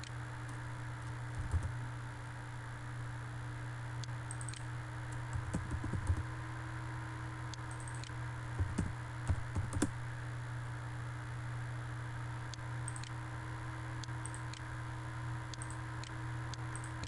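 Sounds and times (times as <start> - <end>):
low background hum: 0.0 - 17.0
keyboard and mouse clicking: 0.5 - 1.8, 4.3 - 6.2, 7.7 - 9.9, 12.9 - 13.1, 15.5 - 17.0.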